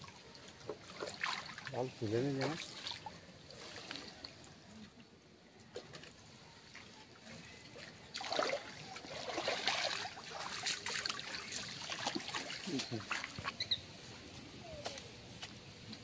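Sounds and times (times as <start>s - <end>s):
water trickling and splashing: 0.0s - 14.5s.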